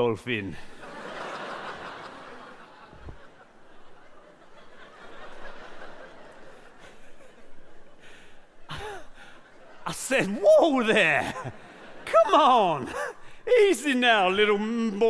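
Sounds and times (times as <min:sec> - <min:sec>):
audience laughing: 0:00.7 - 0:13.8.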